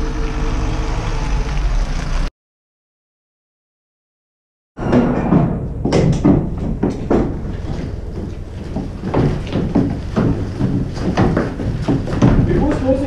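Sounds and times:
steady low rumble: 5.5 - 13.0
footsteps on paving: 6.8 - 13.0.

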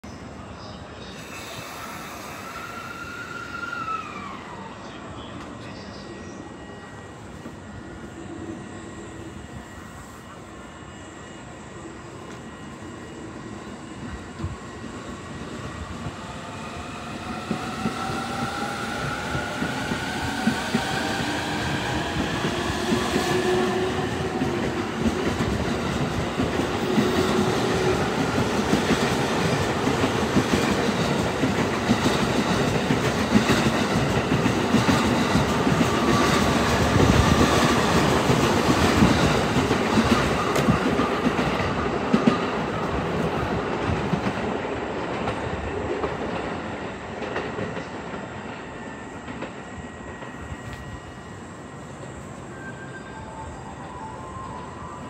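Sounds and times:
electric train motors whining: 1.1 - 4.8.

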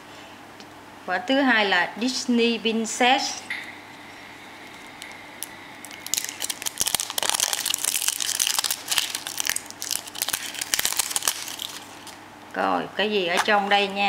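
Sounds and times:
foil wrapper crinkling: 4.6 - 12.2.

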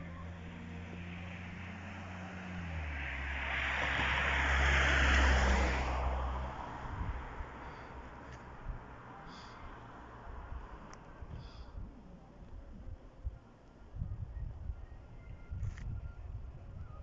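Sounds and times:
vehicle passing by: 0.0 - 11.6.

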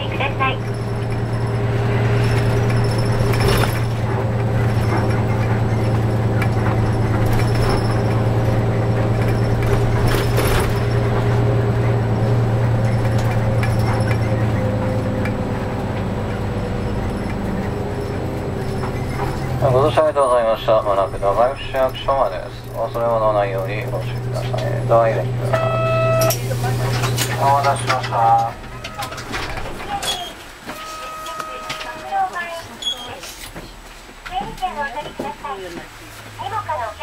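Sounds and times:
bus diesel engine drone: 0.0 - 37.0
knocks and rattles: 0.5 - 20.1, 26.9 - 30.8.

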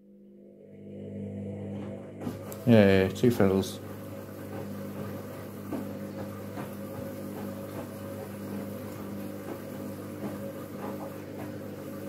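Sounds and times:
washing machine motor hum: 0.0 - 12.0
clothes knocking in drum: 4.4 - 11.8.

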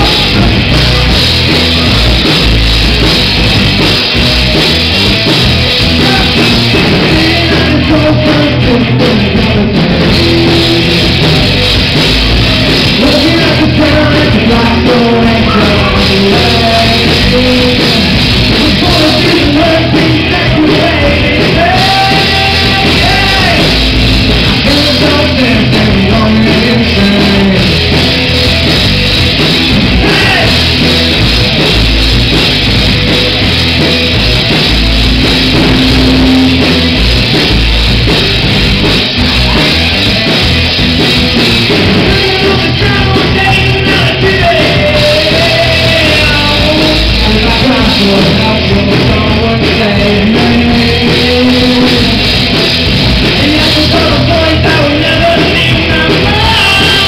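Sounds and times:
rock band playing live: 0.0 - 57.0
person singing: 5.6 - 28.4, 29.9 - 30.7, 41.7 - 52.4, 53.2 - 57.0.

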